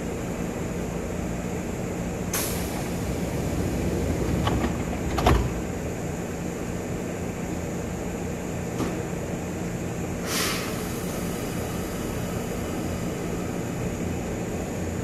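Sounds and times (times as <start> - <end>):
train humming: 0.0 - 15.0
air hiss of train doors: 2.2 - 4.2, 10.2 - 14.4
train doors closing with thud: 2.4 - 6.4, 8.7 - 9.2.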